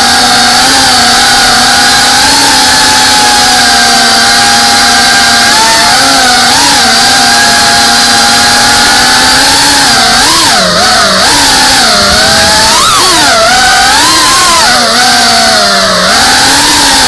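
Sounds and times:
quadcopter motors whining: 0.0s - 17.0s.

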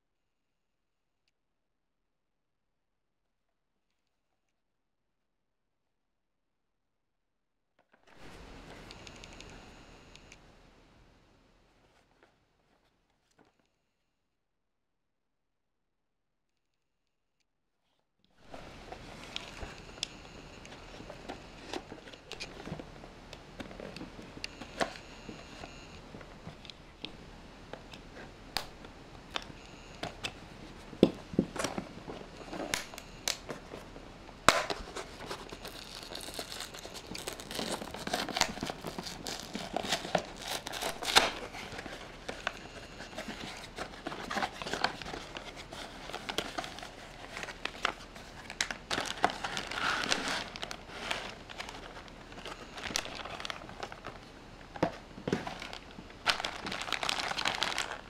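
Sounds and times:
plastic bag crinkling: 29.4s - 58.0s.

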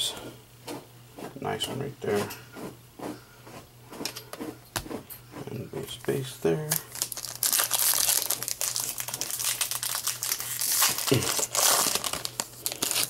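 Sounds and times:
foil wrapper crinkling: 6.7s - 13.0s.

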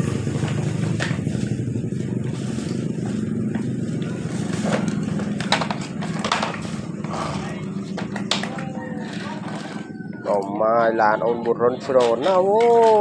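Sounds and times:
plastic bag rustling: 0.0s - 6.9s
plastic toy trucks clattering: 4.4s - 7.4s, 11.8s - 13.0s.

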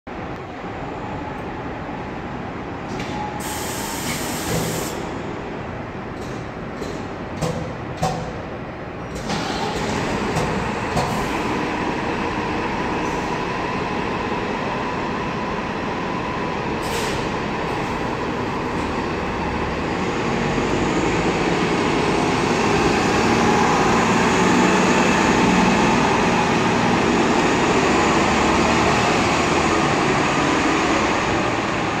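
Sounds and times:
bus diesel engine running: 0.1s - 32.0s
air hiss: 3.4s - 5.1s.

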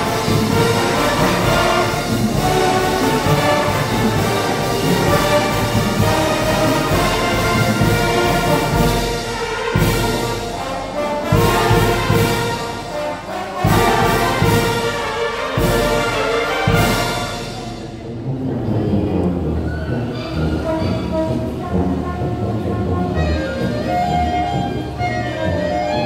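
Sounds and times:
percussion strokes: 0.0s - 18.5s
brass band playing: 0.0s - 26.0s.

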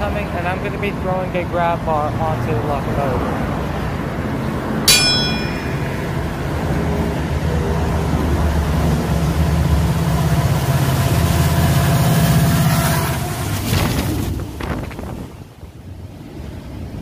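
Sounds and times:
diesel locomotives rumbling past: 1.9s - 13.7s.

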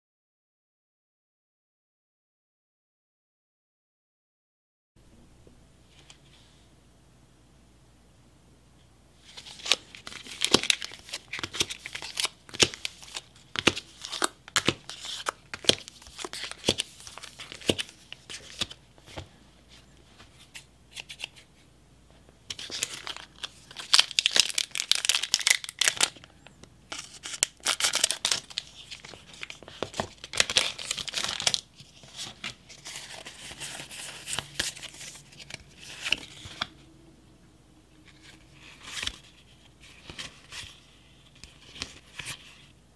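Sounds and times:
wrapper tearing: 22.6s - 26.2s, 26.9s - 29.6s
foil wrappers crinkling: 22.6s - 26.3s, 26.9s - 36.2s.

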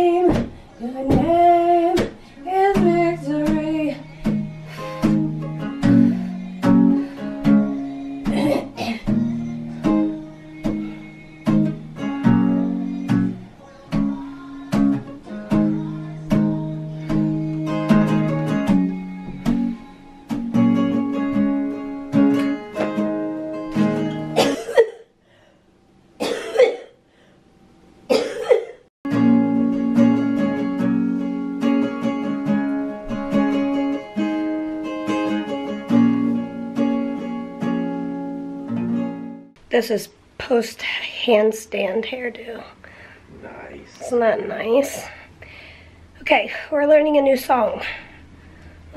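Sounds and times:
acoustic guitar strumming: 0.0s - 24.9s, 29.1s - 39.6s.

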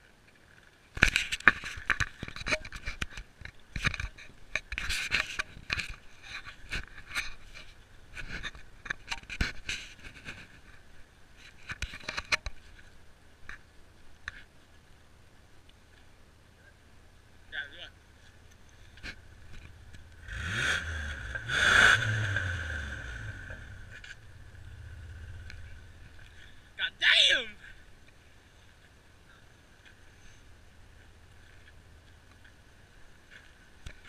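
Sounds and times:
camera handling scraping and clicks: 1.0s - 10.5s, 11.4s - 12.6s.

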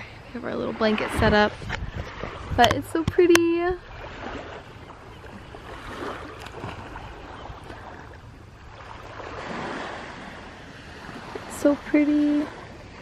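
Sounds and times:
waves washing onto beach: 0.0s - 13.0s.

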